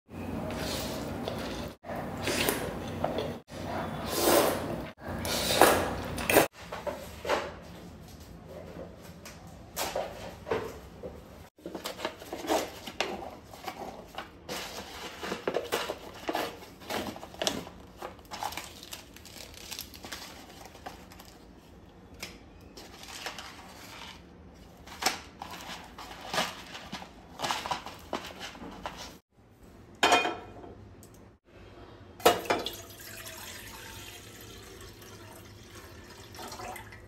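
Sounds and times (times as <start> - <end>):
plastic wrappers crinkling: 11.6 - 21.8.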